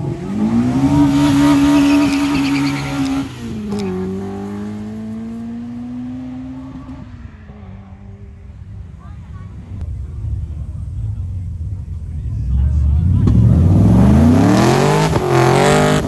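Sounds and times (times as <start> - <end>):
car engine accelerating hard: 0.0 - 16.0.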